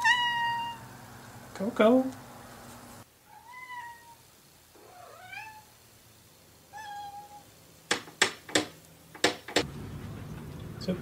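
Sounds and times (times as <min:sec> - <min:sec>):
cat meowing softly: 0:00.0 - 0:00.8, 0:03.3 - 0:04.2, 0:04.8 - 0:05.7, 0:06.7 - 0:07.5
sharp knocks: 0:07.9 - 0:09.7.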